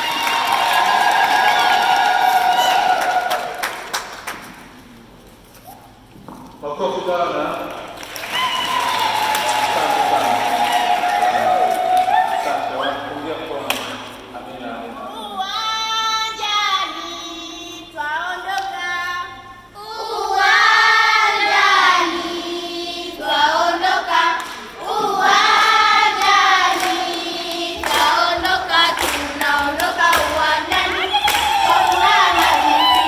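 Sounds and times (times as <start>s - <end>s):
rhythmic hand clapping: 0.0s - 4.8s, 7.6s - 12.6s, 13.7s - 14.1s, 23.8s - 33.0s
children's choir singing: 15.7s - 33.0s.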